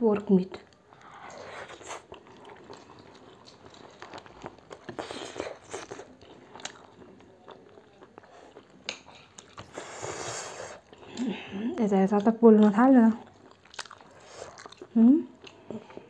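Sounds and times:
chewing and slurping noodles: 0:00.9 - 0:11.4, 0:12.6 - 0:16.0.

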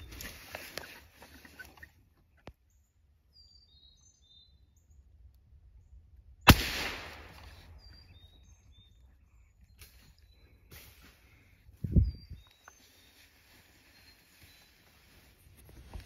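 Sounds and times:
rifle shot: 0:06.5 - 0:07.8
faint bird chirps: 0:07.3 - 0:16.0.

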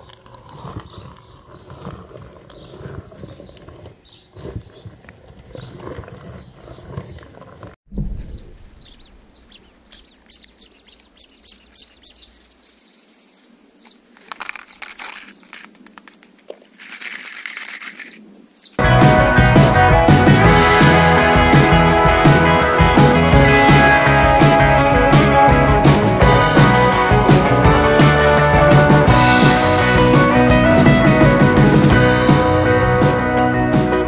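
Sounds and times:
sharp high bird chirps: 0:08.2 - 0:14.0.

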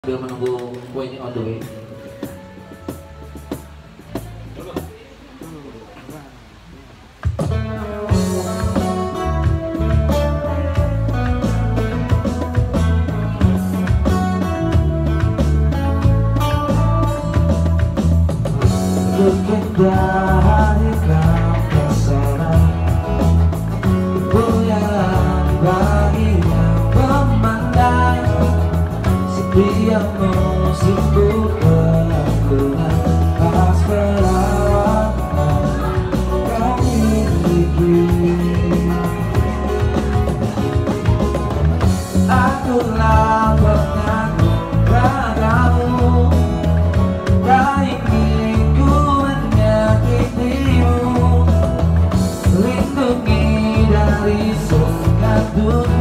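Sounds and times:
live rock band playing: 0:00.0 - 0:05.6, 0:07.0 - 0:56.0
guitar: 0:00.0 - 0:56.0
heavy bass line: 0:06.3 - 0:56.0
man singing: 0:18.5 - 0:41.2, 0:41.8 - 0:56.0.

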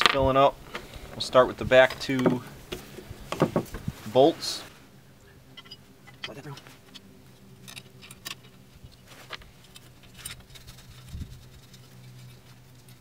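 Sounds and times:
dull thump: 0:03.3 - 0:03.8.

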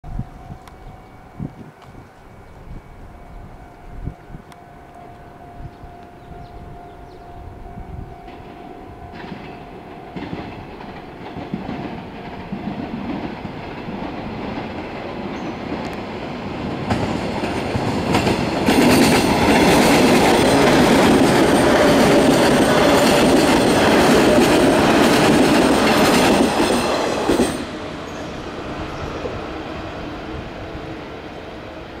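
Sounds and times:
electric train passing: 0:00.0 - 0:32.0
wheels clicking over rail joints: 0:08.2 - 0:27.7.

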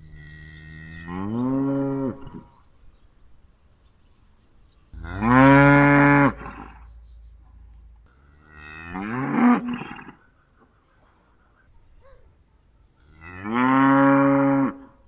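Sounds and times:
cow mooing: 0:00.1 - 0:02.3, 0:05.0 - 0:06.9, 0:08.1 - 0:10.2, 0:13.0 - 0:14.9.

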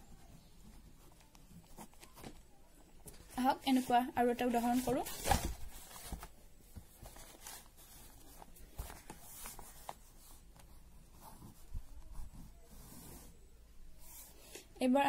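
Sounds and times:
paper rustling: 0:04.5 - 0:13.3.

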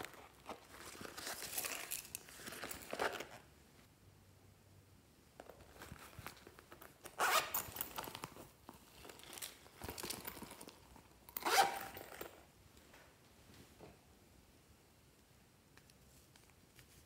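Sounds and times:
fabric pouch rustling: 0:00.0 - 0:03.5, 0:05.5 - 0:12.4
zipper pulled: 0:07.0 - 0:08.3, 0:11.3 - 0:12.4.

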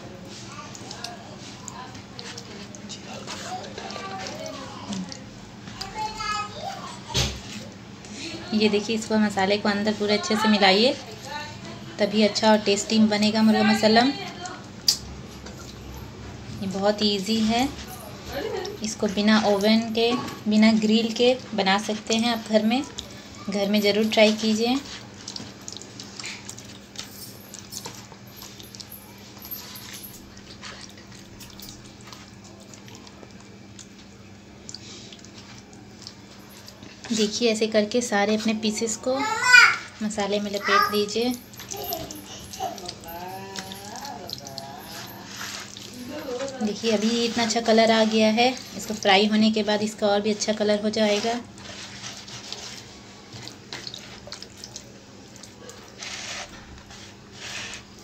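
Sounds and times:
hand squelching meat in marinade: 0:21.8 - 0:37.3, 0:42.7 - 0:58.0
swishes in plastic bowl: 0:51.0 - 0:54.8, 0:55.4 - 0:58.0.

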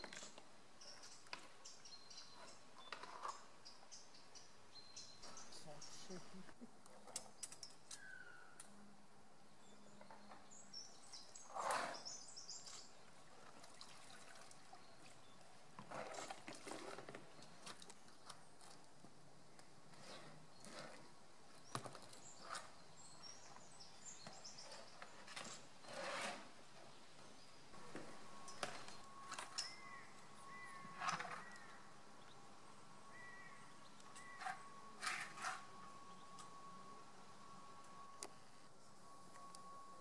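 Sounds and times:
water splashing and sloshing: 0:12.6 - 0:18.8.

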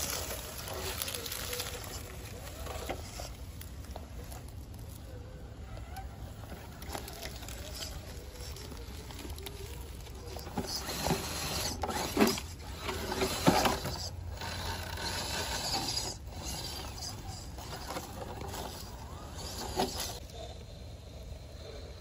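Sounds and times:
tyres crunching through leaves: 0:00.0 - 0:20.2
electric motor and gears whirring: 0:00.0 - 0:22.0.

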